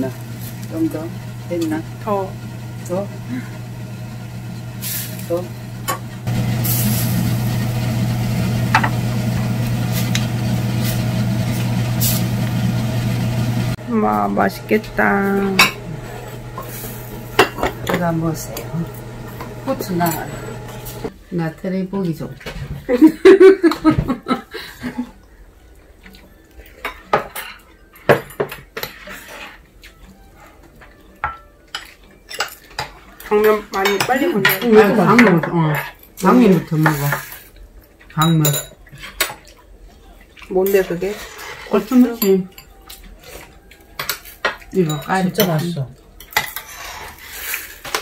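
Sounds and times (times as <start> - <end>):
broth boiling in pot: 0.0 - 21.4
low hum: 0.1 - 21.1
ladle and spoons clinking on bowls: 30.8 - 39.6, 40.3 - 46.8.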